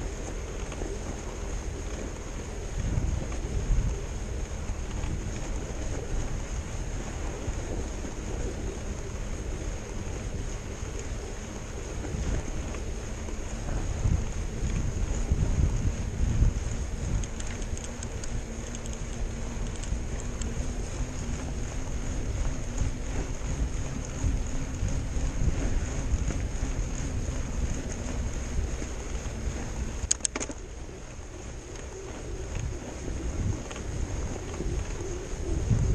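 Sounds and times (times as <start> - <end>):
tyres rumbling on snow: 0.0 - 35.9
wind buffeting microphone: 0.0 - 35.9
sharp clicks: 17.1 - 20.5, 30.0 - 30.6.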